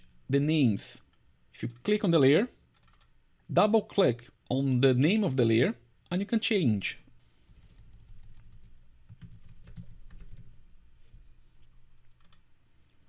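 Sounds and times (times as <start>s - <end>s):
faint typing on computer keyboard: 1.1s - 2.0s, 2.7s - 3.2s, 7.5s - 10.6s, 11.6s - 13.0s.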